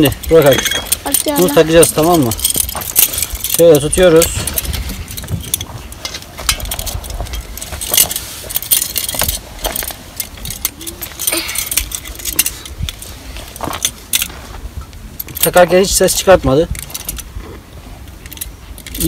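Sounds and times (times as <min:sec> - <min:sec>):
stove fittings clinking and scraping: 0:00.0 - 0:14.3
wind rumbling on microphone: 0:00.0 - 0:19.0.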